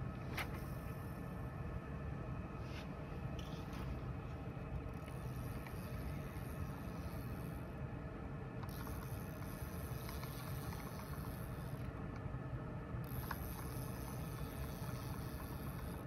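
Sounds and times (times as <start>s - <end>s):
low background rumble: 0.0s - 16.0s
faint ticks: 8.6s - 11.9s.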